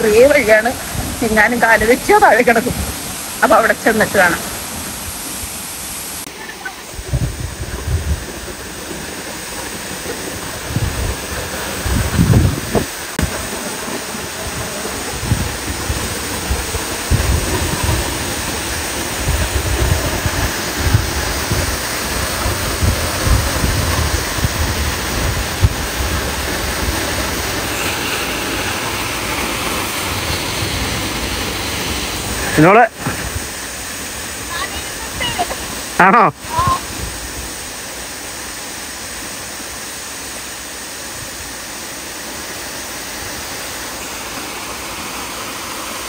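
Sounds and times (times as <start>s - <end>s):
waterfall roaring: 0.0s - 46.0s
low rumbles and thumps: 7.0s - 13.5s, 14.4s - 27.8s.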